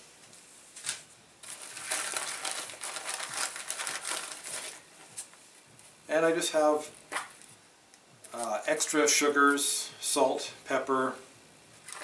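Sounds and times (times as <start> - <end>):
plastic bag crinkling: 0.9 - 5.4.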